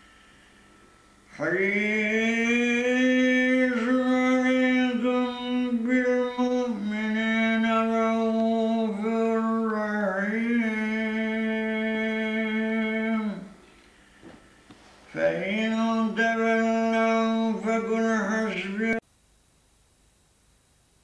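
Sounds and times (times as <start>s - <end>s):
man chanting melodic recitation: 1.3s - 13.5s, 15.1s - 19.0s.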